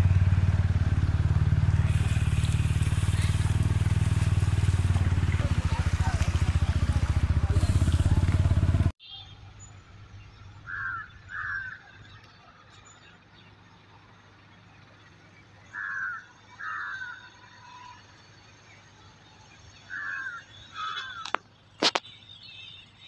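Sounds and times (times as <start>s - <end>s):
loud hum: 0.0s - 9.0s
crows cawing: 10.6s - 12.0s, 15.7s - 17.9s, 19.9s - 21.4s.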